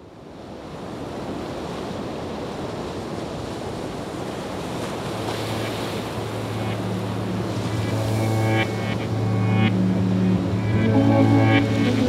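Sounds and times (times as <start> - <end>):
steady rushing noise: 4.9 - 12.0
low music drone: 5.5 - 12.0.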